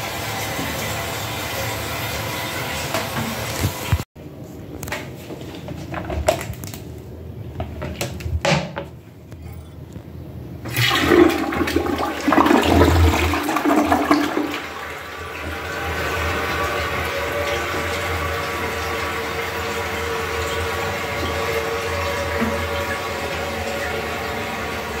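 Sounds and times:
toilet tank refilling hiss: 0.0 - 4.0, 10.7 - 25.0
toilet flushing: 0.0 - 4.1, 10.6 - 25.0.

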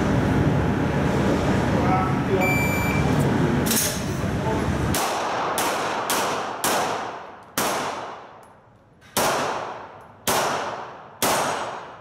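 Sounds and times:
pistol shots ringing indoors: 4.9 - 12.0.

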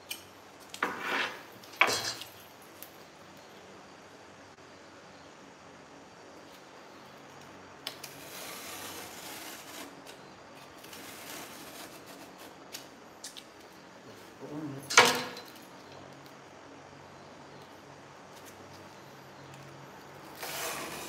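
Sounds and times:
knife slicing through cardboard: 8.0 - 10.2, 20.3 - 21.0.

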